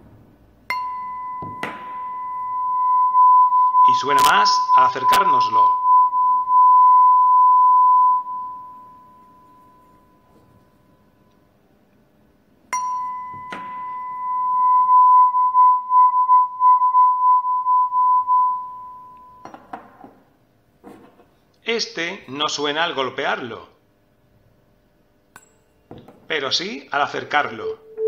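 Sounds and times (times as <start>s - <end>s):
mallet tapping tuning fork: 0.7s - 3.1s, 12.7s - 14.8s
tuning fork ringing: 0.7s - 11.6s, 12.7s - 19.6s, 27.8s - 28.0s.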